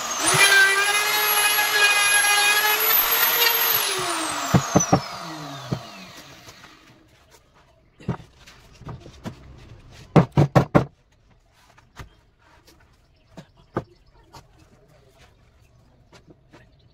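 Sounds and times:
electric router winding down: 0:00.0 - 0:06.9.

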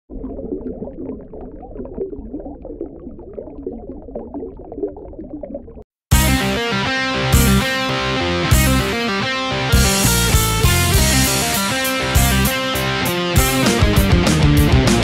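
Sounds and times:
water bubbling and gurgling: 0:00.1 - 0:05.9
rock music with electric guitar: 0:06.1 - 0:15.0.

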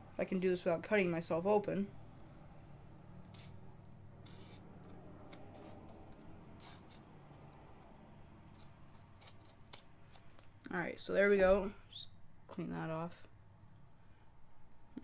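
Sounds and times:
blade slicing plastic wrap and tape: 0:08.5 - 0:10.2.

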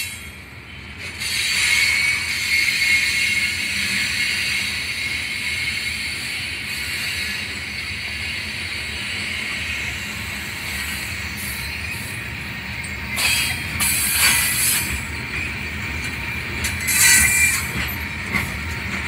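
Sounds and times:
freight train rumbling past: 0:00.0 - 0:19.0
wheel squeal: 0:10.8 - 0:18.6.

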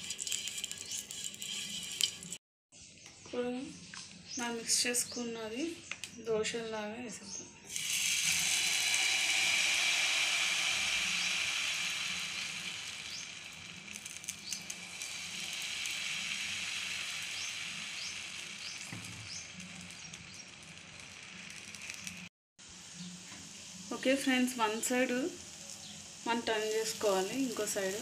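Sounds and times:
batter sizzling in pan: 0:00.0 - 0:02.4, 0:07.7 - 0:28.0
ladle scraping pan: 0:00.0 - 0:02.4.

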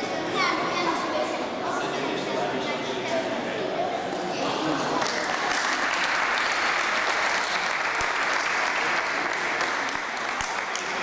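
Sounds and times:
people clapping: 0:04.4 - 0:11.0.

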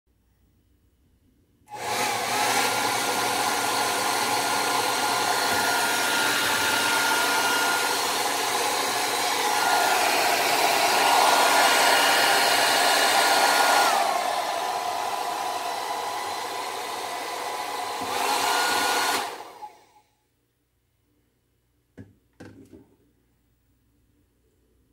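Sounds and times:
hair dryer running: 0:01.7 - 0:20.0.

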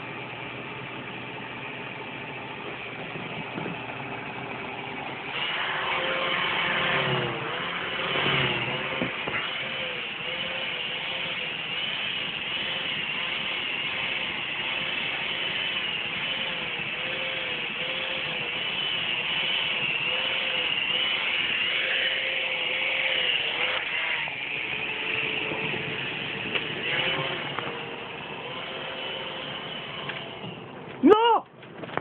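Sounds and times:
small motor whirring: 0:05.2 - 0:30.6.

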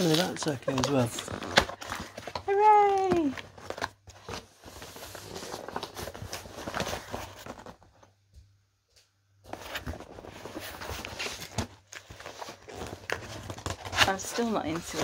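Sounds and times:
cardboard box scraping and rustling: 0:09.6 - 0:15.0.

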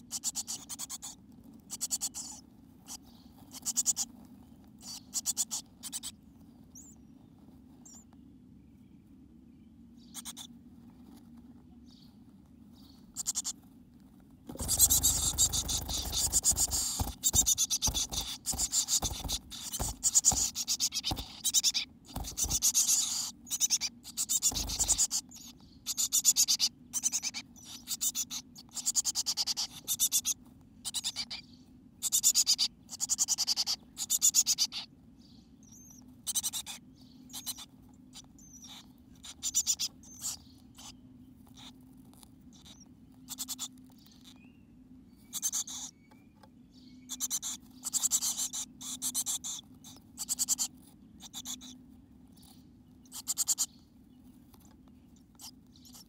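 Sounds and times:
bird scratching nest material: 0:00.0 - 0:06.2, 0:13.0 - 0:31.3, 0:47.2 - 0:51.8
faint low hum: 0:00.0 - 0:56.0.

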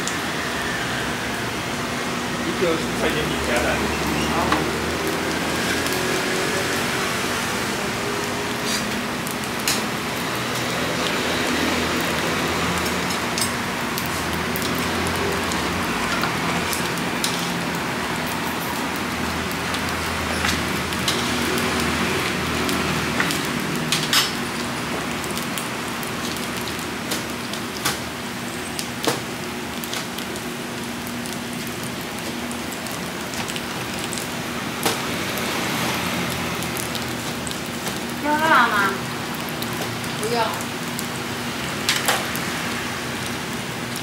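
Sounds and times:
pancakes sizzling on a griddle: 0:00.0 - 0:44.0.

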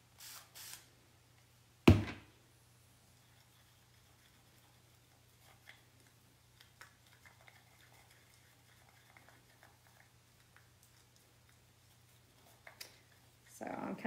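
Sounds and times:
paste stirred in a jar: 0:03.1 - 0:13.4.

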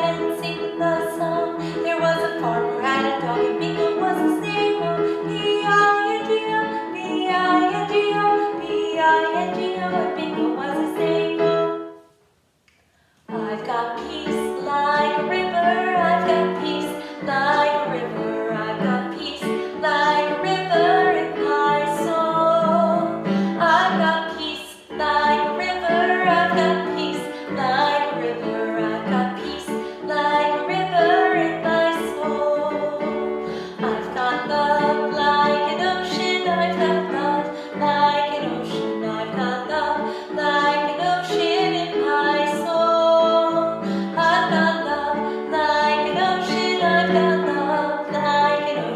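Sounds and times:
woman singing vocal exercises: 0:13.3 - 0:48.9.

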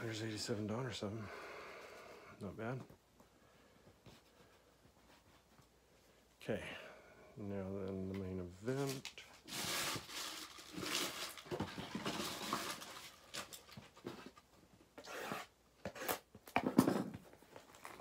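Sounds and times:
plastic wrap rustling and crinkling: 0:08.7 - 0:14.6
scraping on wrapped box: 0:09.5 - 0:13.1.

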